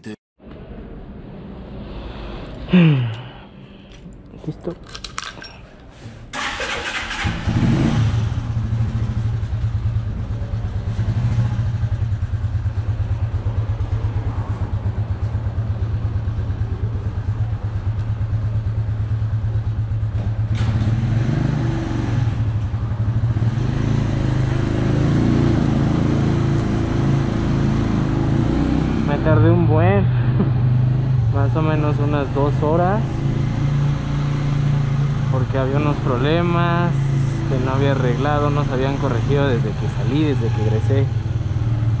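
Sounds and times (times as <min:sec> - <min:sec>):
motorcycle engine running: 0:06.4 - 0:20.6.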